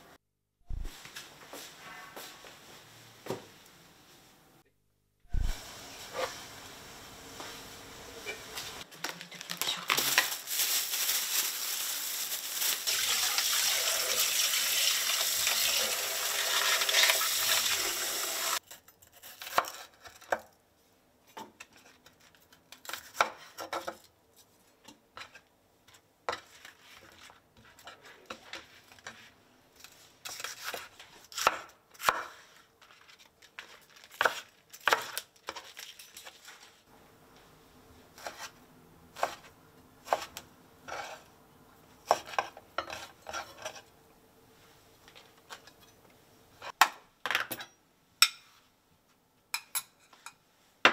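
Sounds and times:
plastic bag crinkling: 8.9 - 13.7.

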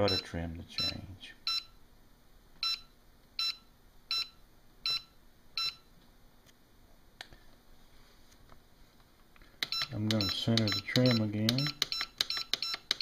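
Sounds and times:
short transmitter beeps: 9.6 - 13.0.

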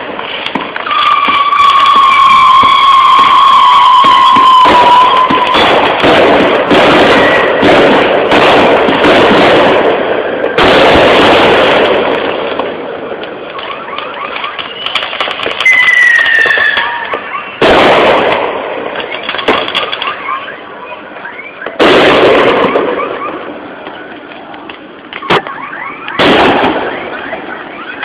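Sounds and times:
fireworks crackling and banging: 0.0 - 28.0
heavy firework blasts: 0.0 - 28.0
falling firework whistle: 0.4 - 7.9, 13.5 - 23.4, 25.1 - 28.0.

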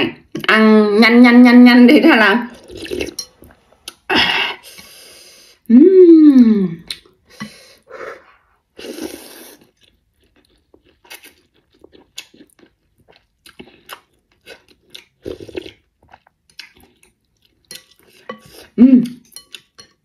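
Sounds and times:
slurping noodles: 2.5 - 3.6, 15.2 - 15.8
person humming: 5.7 - 6.9.

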